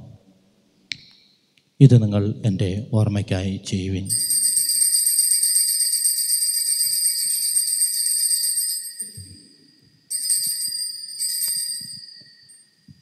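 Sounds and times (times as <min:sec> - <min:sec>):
bells jingling: 0:04.1 - 0:13.0.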